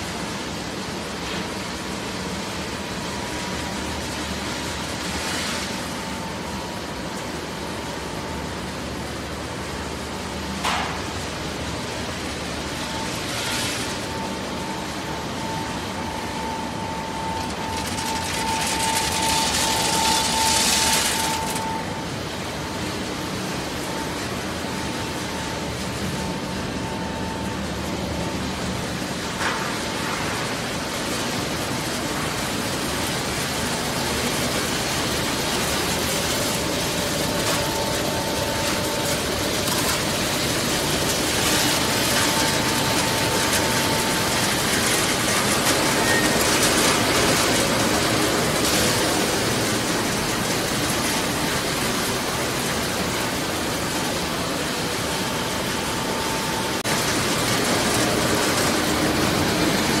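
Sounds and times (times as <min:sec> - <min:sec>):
faint machine whine: 0:00.0 - 1:00.0
machinery clatter and hum: 0:00.0 - 1:00.0.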